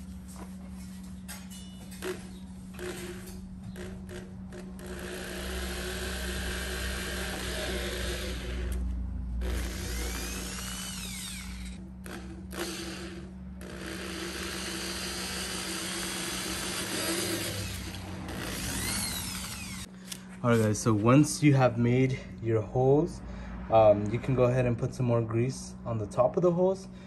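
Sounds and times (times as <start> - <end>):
electric drill boring plastic: 4.8 - 8.8, 9.4 - 19.9.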